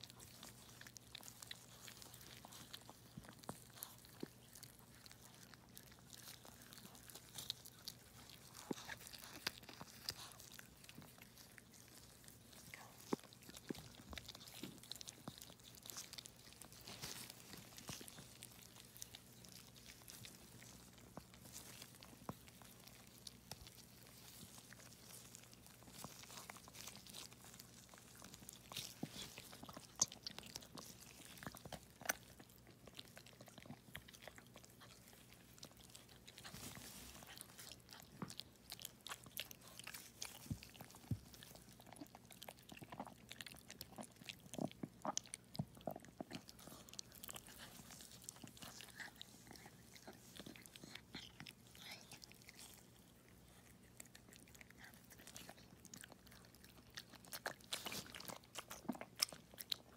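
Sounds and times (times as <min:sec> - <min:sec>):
faint low hum: 0:00.0 - 0:59.9.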